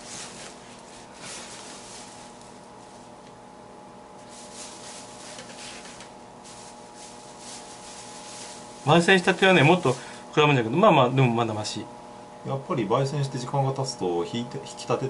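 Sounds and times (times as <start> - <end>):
soft rustles: 0.0 - 3.2, 4.2 - 10.2
faint steady hum: 0.0 - 15.0.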